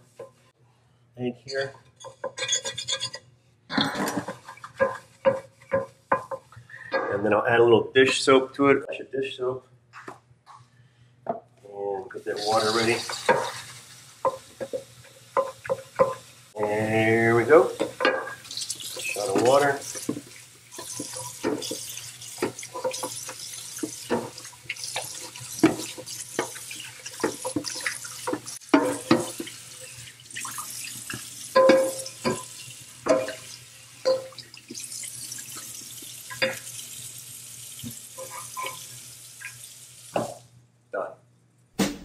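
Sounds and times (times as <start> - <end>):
tap water running into sink: 17.5 - 40.4
metal pan clanking on sink: 17.8 - 20.2, 25.0 - 29.5, 31.6 - 33.4.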